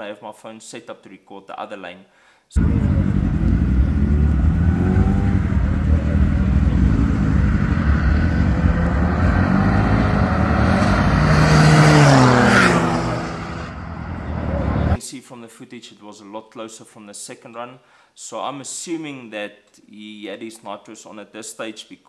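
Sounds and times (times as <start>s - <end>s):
car passing close: 2.6s - 15.0s
race car engines: 2.6s - 15.0s.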